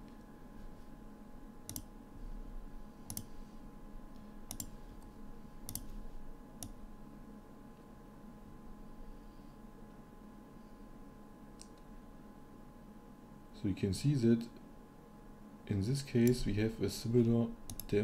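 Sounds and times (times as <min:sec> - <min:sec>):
faint steady hum: 0:00.0 - 0:18.0
computer mouse clicking: 0:01.7 - 0:01.9, 0:03.1 - 0:03.3, 0:04.5 - 0:06.0, 0:17.7 - 0:18.0.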